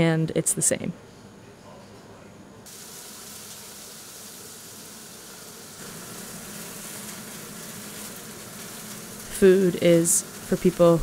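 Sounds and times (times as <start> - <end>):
food sizzling in frying pans: 2.7 - 11.0.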